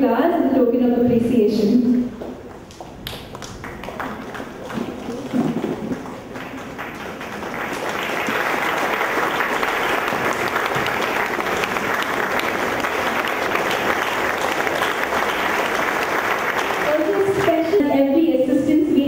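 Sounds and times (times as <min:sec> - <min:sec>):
audience applauding: 0:02.1 - 0:17.8.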